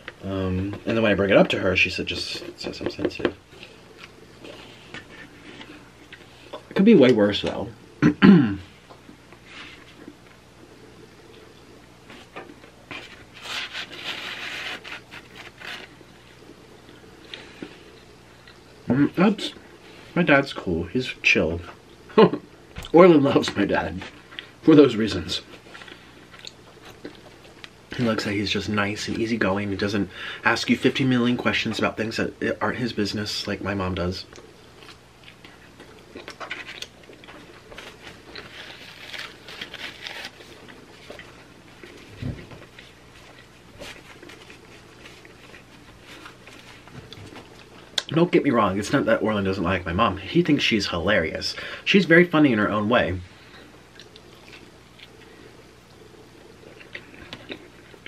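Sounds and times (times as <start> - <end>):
pizza scraping against cardboard: 12.9 - 15.9
person chewing food: 25.6 - 27.8, 34.4 - 48.1, 53.9 - 58.0.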